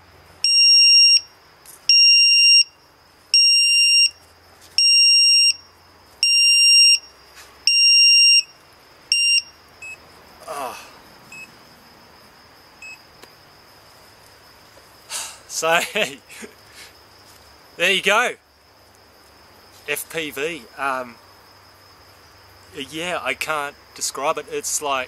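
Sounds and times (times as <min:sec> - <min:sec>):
high alarm beeps from buzzer: 0:00.4 - 0:01.3, 0:01.9 - 0:04.2, 0:04.8 - 0:08.5, 0:09.1 - 0:10.0, 0:11.3 - 0:11.5, 0:12.8 - 0:13.0.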